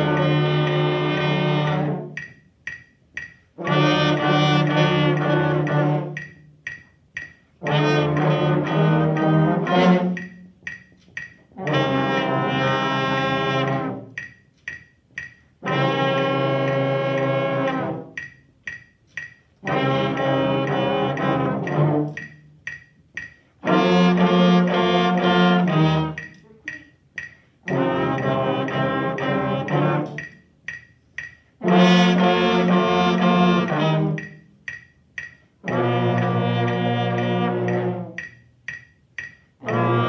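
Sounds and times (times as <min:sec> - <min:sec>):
brass ensemble playing held notes: 0:00.0 - 0:02.2, 0:03.5 - 0:06.3, 0:07.6 - 0:10.4, 0:11.5 - 0:14.2, 0:15.6 - 0:18.2, 0:19.6 - 0:22.4, 0:23.6 - 0:26.3, 0:27.6 - 0:30.3, 0:31.6 - 0:34.4, 0:35.6 - 0:38.3, 0:39.6 - 0:40.0
faint ticks: 0:00.0 - 0:40.0.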